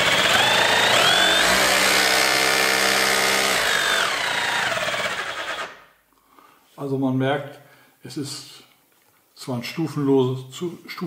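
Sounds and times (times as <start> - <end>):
rotary hammer motor whining: 0.0 - 5.8.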